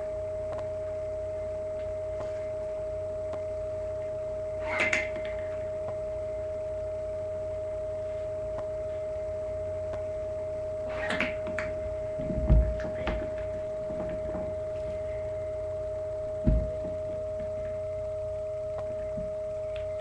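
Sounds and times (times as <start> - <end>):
high electrical hum: 0.0 - 20.0
sharp snap: 4.6 - 6.0, 10.9 - 11.7
dull thump: 12.2 - 14.5, 16.4 - 17.0.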